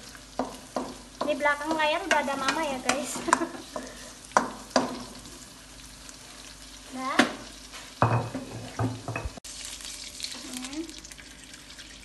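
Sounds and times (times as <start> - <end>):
onions sizzling in oil: 0.0 - 12.0
wooden spatula knocking on wok: 0.3 - 5.2, 8.0 - 9.4.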